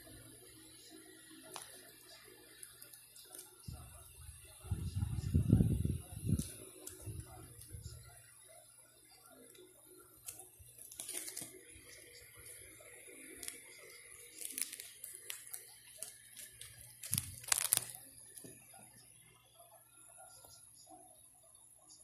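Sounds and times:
plastic pockets crinkling: 10.2s - 12.6s, 14.2s - 18.0s.

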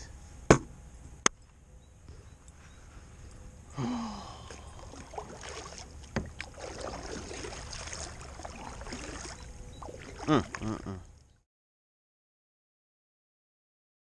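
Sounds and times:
water splashing around kayak: 4.2s - 11.2s.

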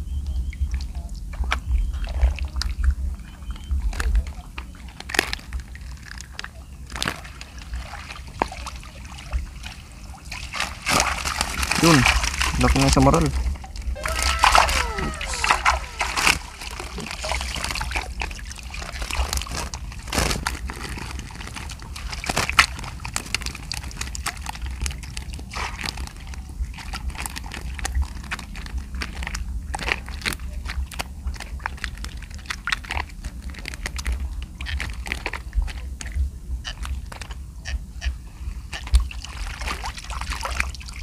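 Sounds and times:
wind rumble on microphone: 0.0s - 6.0s
net and fish rustling: 10.3s - 13.0s, 14.0s - 37.5s.

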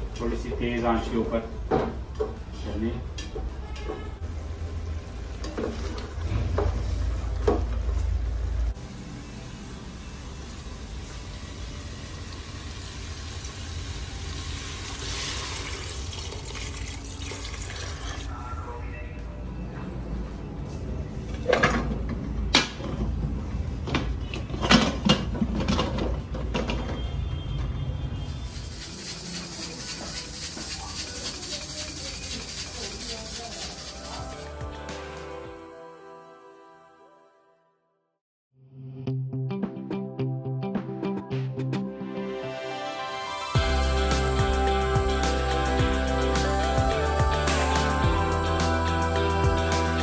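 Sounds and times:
meat sizzling in oil: 8.8s - 16.8s.

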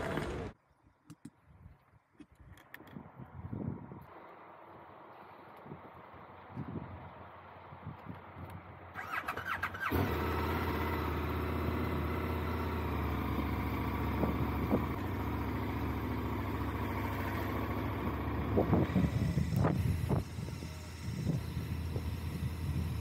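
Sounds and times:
motorcycle electric starter cranking: 8.9s - 11.6s, 17.2s - 23.0s
motorcycle engine idling: 9.0s - 23.0s.

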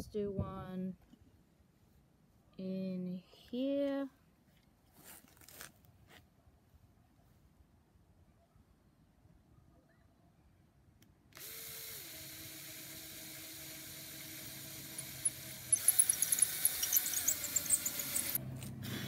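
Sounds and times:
drill bit grinding into concrete block: 11.4s - 18.4s
rotary tool running: 11.4s - 18.4s.

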